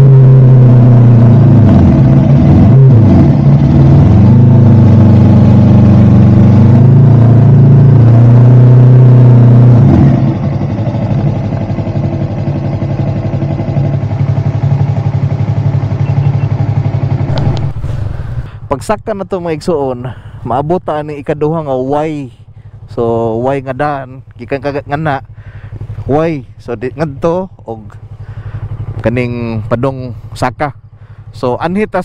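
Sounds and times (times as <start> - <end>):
motorcycle engine shifting gears: 0.0 - 18.7, 25.3 - 26.2
road and wind noise: 0.0 - 32.0.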